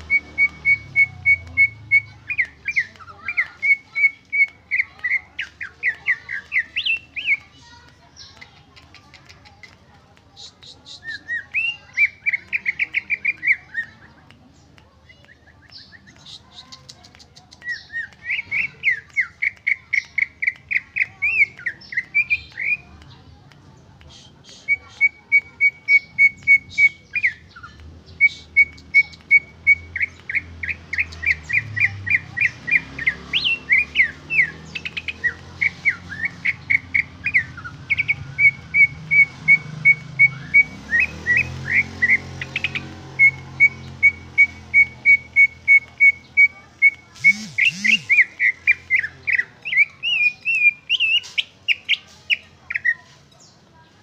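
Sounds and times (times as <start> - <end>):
bird whistling repeated notes: 0.0 - 7.4, 24.1 - 53.0.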